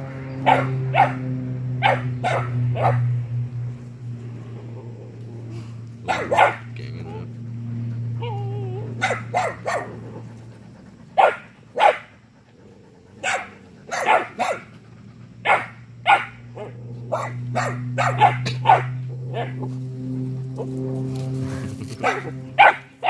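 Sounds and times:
puppies barking: 0:00.0 - 0:03.3, 0:06.0 - 0:19.8, 0:21.9 - 0:23.0.

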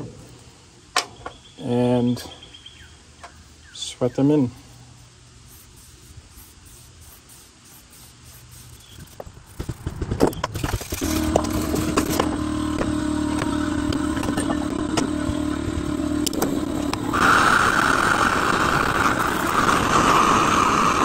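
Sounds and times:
air compressor humming: 0:03.3 - 0:21.0
wire brush scratching metal fittings: 0:04.7 - 0:09.9
soldering torch hissing: 0:05.0 - 0:09.6, 0:16.3 - 0:21.0.

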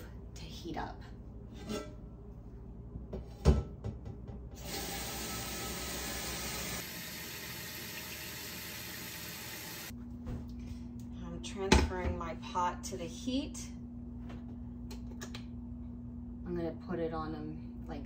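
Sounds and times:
tap water running into pot: 0:04.6 - 0:09.9.

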